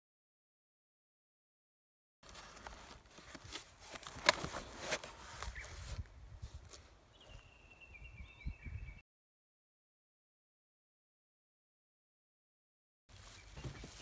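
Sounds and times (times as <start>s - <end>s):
cardboard box rustling and scraping: 2.2s - 6.0s, 13.1s - 14.0s.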